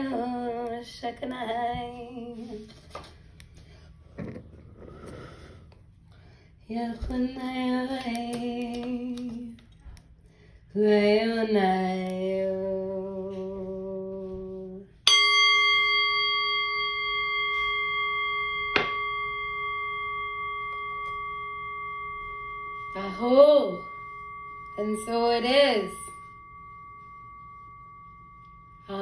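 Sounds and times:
woman singing long tones: 10.8s - 15.0s, 21.2s - 29.0s
singing bowl ringing: 15.0s - 29.0s.

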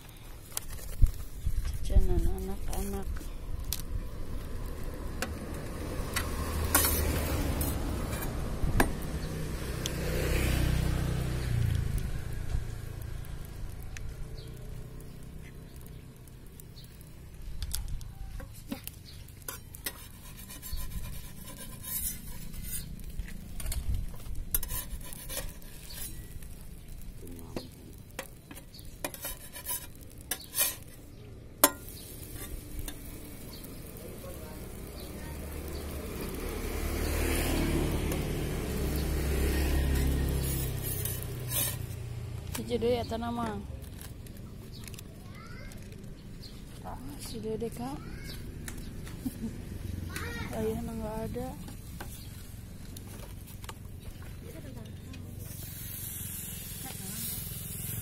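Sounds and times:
metal spatula scraping griddle: 6.0s - 8.4s, 18.4s - 35.1s, 38.1s - 42.0s
faint sizzle: 9.0s - 58.0s.

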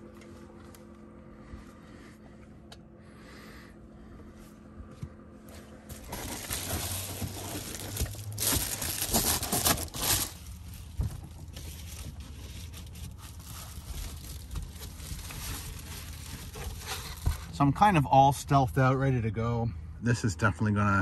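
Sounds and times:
steady low hum: 0.0s - 21.0s
foil crinkling and rustling: 5.9s - 17.6s.

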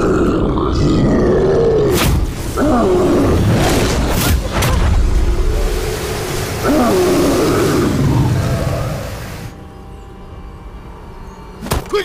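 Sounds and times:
growling monster roars: 0.0s - 2.0s, 6.6s - 9.4s.

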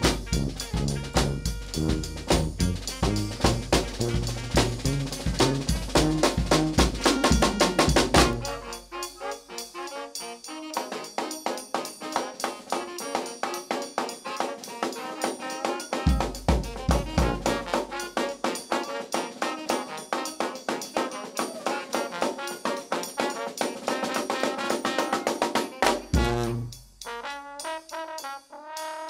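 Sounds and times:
heavy low drum hits: 0.0s - 8.5s
brass band playing: 0.0s - 29.0s.

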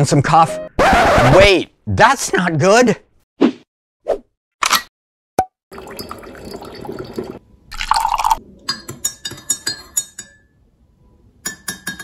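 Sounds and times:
coffee pouring into a mug: 5.7s - 8.4s
metal spoon clinking in a mug: 7.9s - 10.6s, 11.4s - 12.0s.

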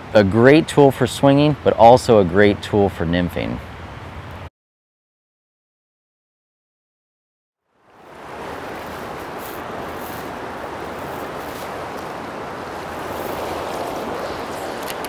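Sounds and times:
river flowing over riffles: 7.8s - 15.0s.

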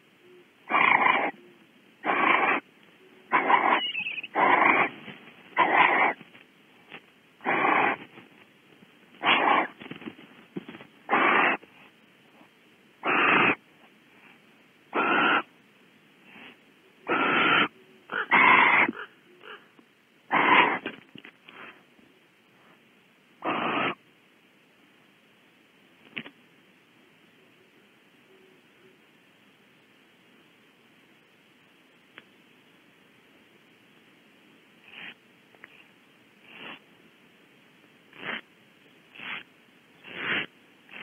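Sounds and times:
barn owl hissing calls: 0.2s - 6.2s, 7.4s - 8.1s, 9.2s - 9.8s, 11.1s - 11.6s, 13.0s - 13.6s, 14.9s - 15.6s, 16.2s - 19.7s, 20.3s - 20.9s, 23.4s - 24.0s, 34.8s - 36.9s, 38.1s - 38.5s, 39.1s - 41.0s.

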